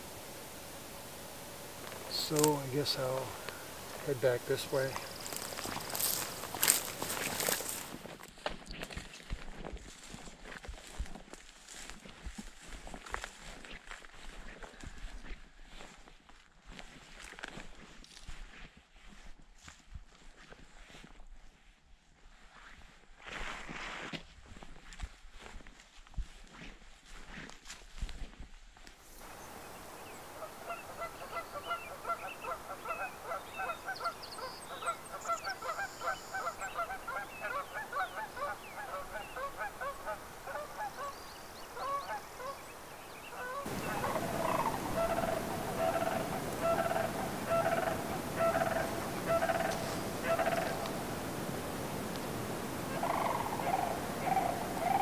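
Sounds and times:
animal calls overlapping: 29.2s - 55.0s.

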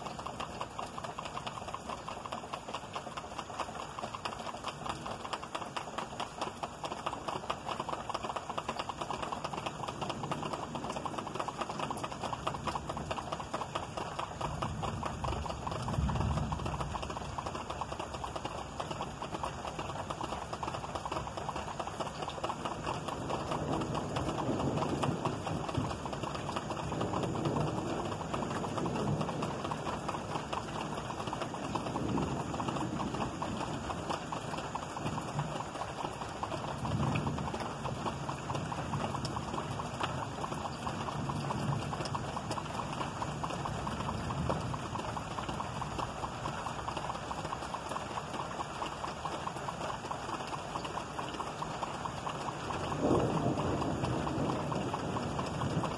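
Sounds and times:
rain falling: 0.0s - 55.9s
thunder rumbling: 9.7s - 18.4s, 22.7s - 47.4s, 52.5s - 55.9s.

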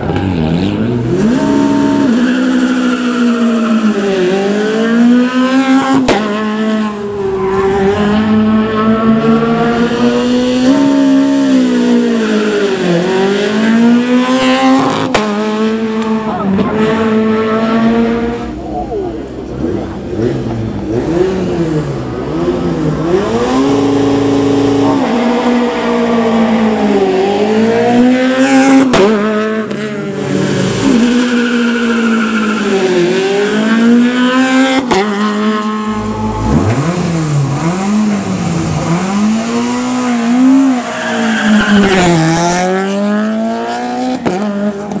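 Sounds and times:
car engine revving: 0.0s - 45.0s
tyre squeal: 30.8s - 33.6s, 40.3s - 42.4s.

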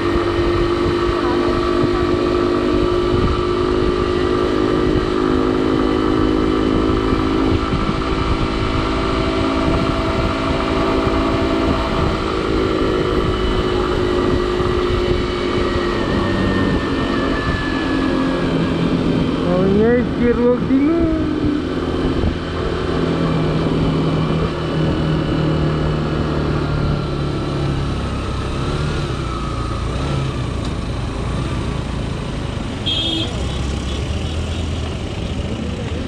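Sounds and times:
wind rumbling on microphone: 0.0s - 5.5s, 6.1s - 29.3s
motorcycle engine running: 0.0s - 36.0s.

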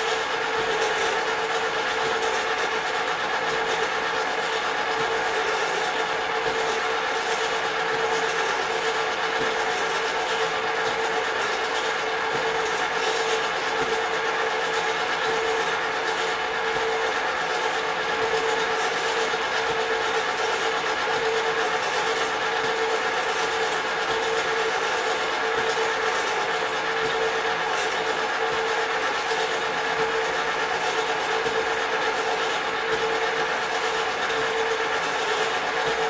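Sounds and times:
popcorn machines running: 0.0s - 36.0s.

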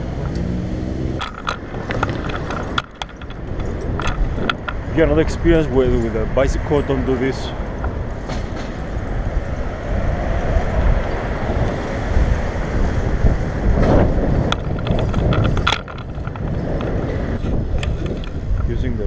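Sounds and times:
wind rumbling on microphone: 0.0s - 19.0s
sharp knocks and clicks: 1.2s - 4.9s, 7.7s - 9.0s, 13.8s - 18.7s.

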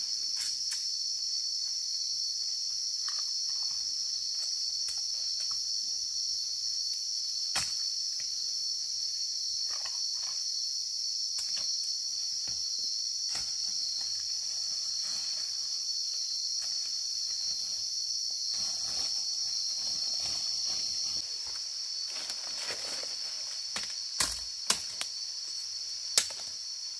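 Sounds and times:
insect chorus buzzing: 0.0s - 26.9s
rustling in undergrowth: 13.2s - 26.8s
twigs snapping: 23.7s - 25.2s, 26.1s - 26.5s.

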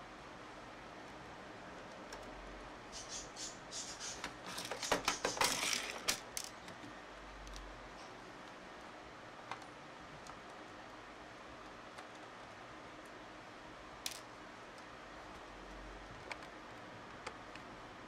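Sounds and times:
small parts clicking and knocking: 4.2s - 7.7s, 14.0s - 17.7s.

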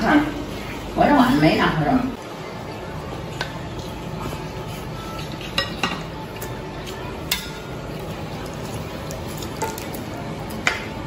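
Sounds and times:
low background noise: 0.0s - 11.0s
utensils clinking against bowls: 5.0s - 8.1s.

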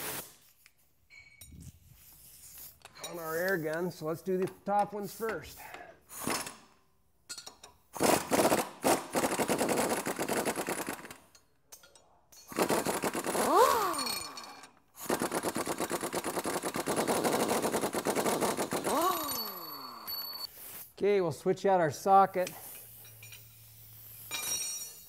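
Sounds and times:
pneumatic impact wrench hammering: 4.4s - 6.8s, 7.4s - 11.4s, 12.4s - 20.4s.

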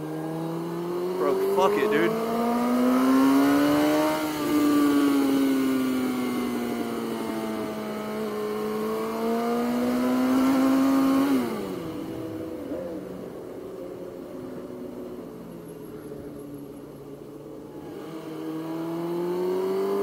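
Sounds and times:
motorcycle engine revving: 0.0s - 13.7s, 17.0s - 20.0s.

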